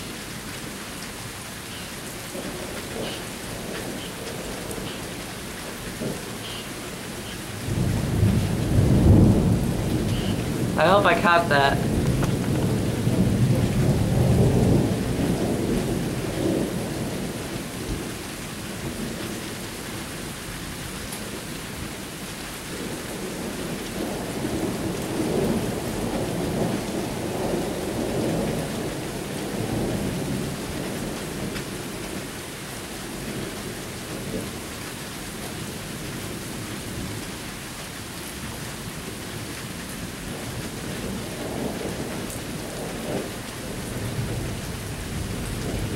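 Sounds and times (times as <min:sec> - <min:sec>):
steady rain: 0:00.0 - 0:45.9
thunder rumbling: 0:02.3 - 0:19.5, 0:22.7 - 0:32.2, 0:40.3 - 0:45.9.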